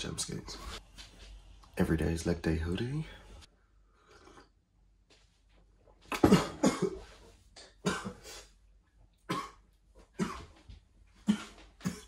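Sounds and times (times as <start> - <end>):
man coughing: 6.1 - 7.1, 7.8 - 8.2, 9.3 - 9.6, 10.2 - 10.5.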